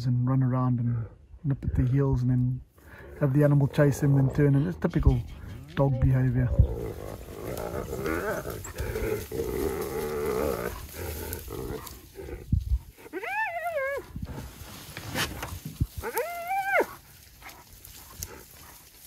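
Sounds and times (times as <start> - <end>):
hyena calling: 6.4 - 14.4, 15.9 - 18.6.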